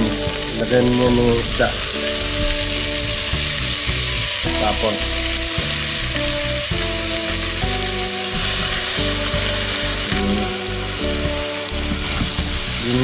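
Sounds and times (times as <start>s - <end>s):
background music with held notes: 0.0s - 13.0s
fish sizzling in hot oil: 0.0s - 13.0s.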